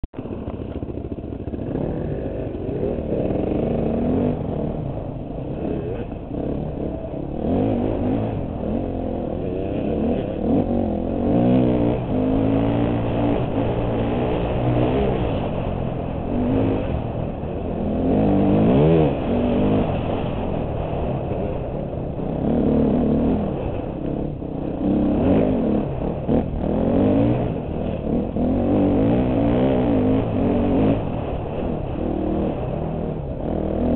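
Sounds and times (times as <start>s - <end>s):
dirt bike engine revving: 0.2s - 33.9s.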